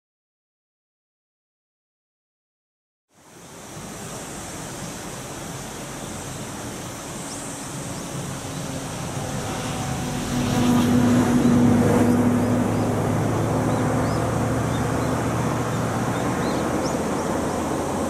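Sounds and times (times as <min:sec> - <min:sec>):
steady rushing background noise: 0:03.2 - 0:18.0
electric train approaching: 0:07.6 - 0:18.0.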